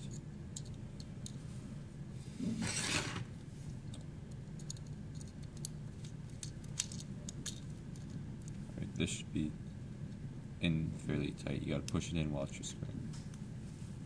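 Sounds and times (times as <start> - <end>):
parts scraping rub: 2.3 - 3.4.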